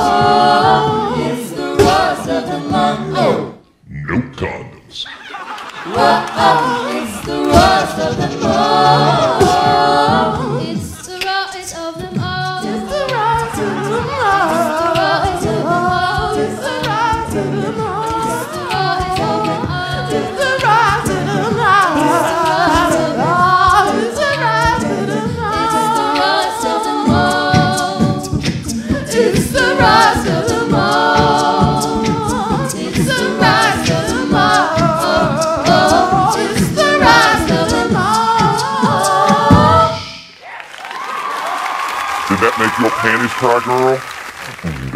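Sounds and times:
a cappella group singing: 0.0s - 3.8s, 5.4s - 40.4s
steady beat: 25.9s - 40.0s.

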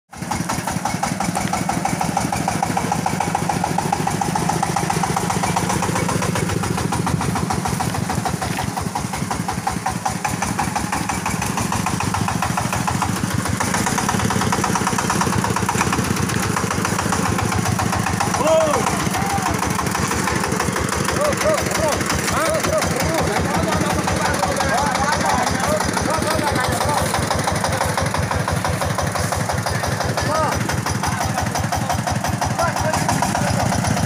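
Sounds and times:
concrete mixer engine running: 0.1s - 34.0s.

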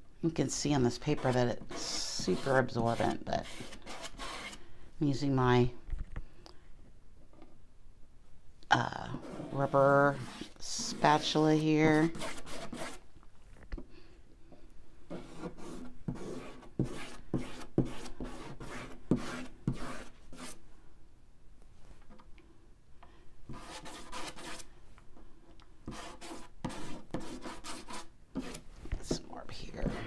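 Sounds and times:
spatula scraping ink on paper: 0.8s - 4.6s, 9.2s - 13.0s, 15.1s - 20.6s, 23.5s - 24.7s, 25.9s - 30.0s.

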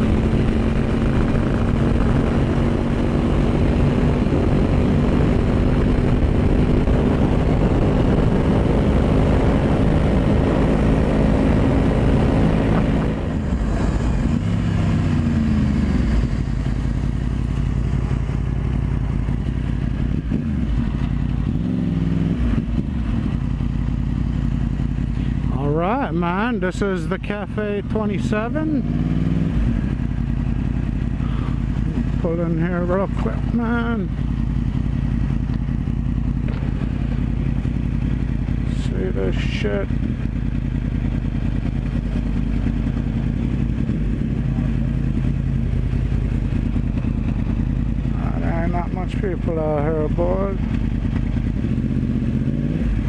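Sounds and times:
wind rushing over microphone: 0.0s - 17.1s
motorcycle engine running: 0.0s - 53.0s.

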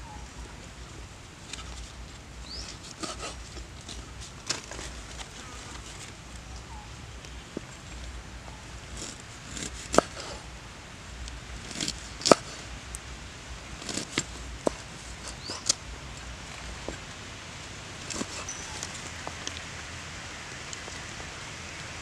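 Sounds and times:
knife slicing on wooden board: 18.1s - 18.6s.

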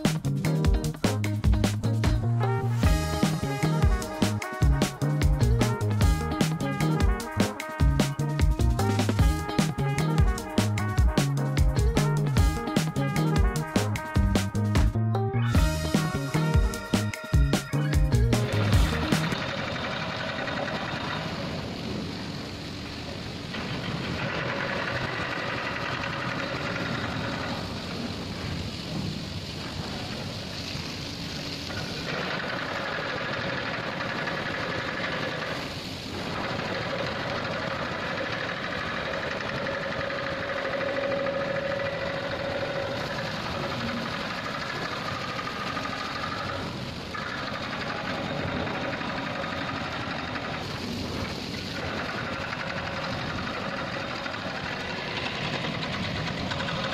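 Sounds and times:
machinery noise: 15.6s - 56.9s.

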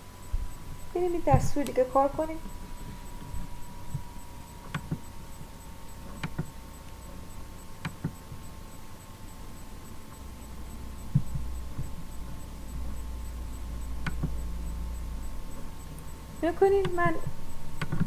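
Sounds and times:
steady electrical hum: 0.0s - 18.0s
computer mouse clicking: 2.8s - 8.5s, 11.0s - 12.4s, 14.0s - 14.4s, 16.8s - 17.0s, 17.8s - 18.0s.

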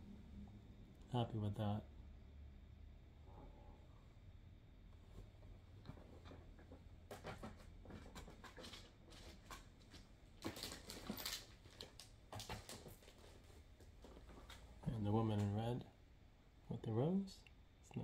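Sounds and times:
rustling of handled objects: 5.0s - 15.5s
light clicks and scrapes: 5.1s - 14.7s.

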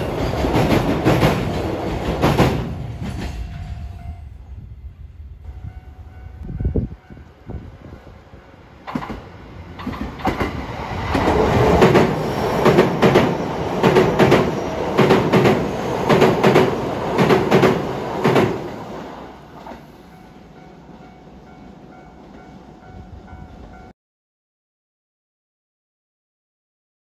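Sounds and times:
train wheels clacking over rail joints: 0.0s - 3.6s, 8.9s - 18.8s.

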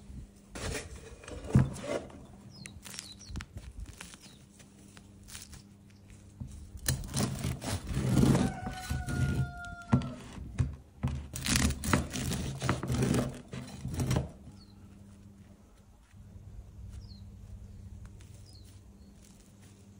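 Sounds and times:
bread knife sawing through crust: 6.8s - 9.6s, 11.4s - 14.4s.

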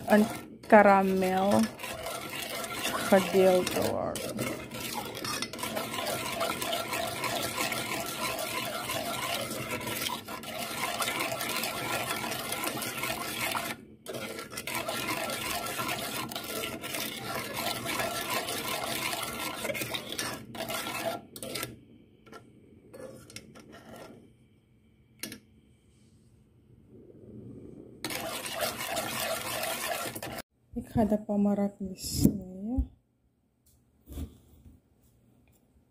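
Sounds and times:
metal ladle scraping a saucepan: 0.0s - 24.2s, 28.0s - 30.4s.

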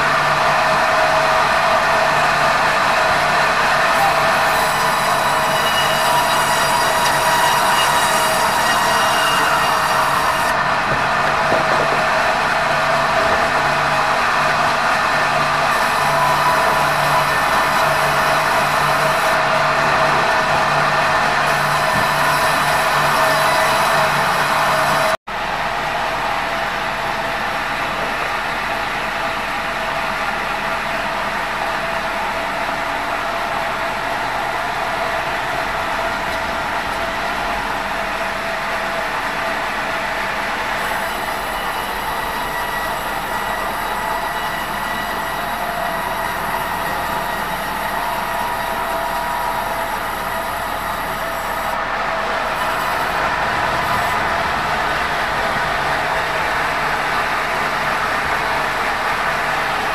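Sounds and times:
band saw cutting log: 0.0s - 25.2s, 40.6s - 58.3s
constant saw whine: 0.0s - 59.9s.

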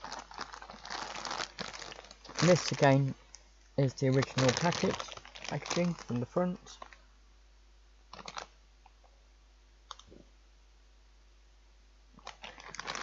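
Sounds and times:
plastic food packet crackling: 0.0s - 3.2s, 3.8s - 7.0s, 8.1s - 8.6s, 12.2s - 13.0s.

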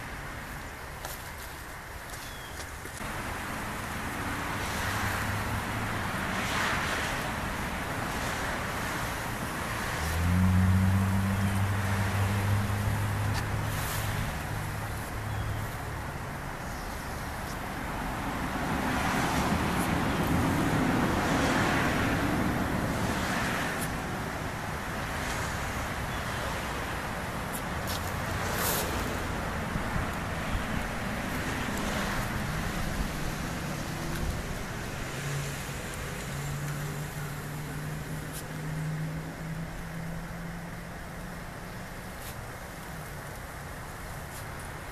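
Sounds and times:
vehicle passing by: 3.0s - 15.4s, 17.7s - 41.6s.

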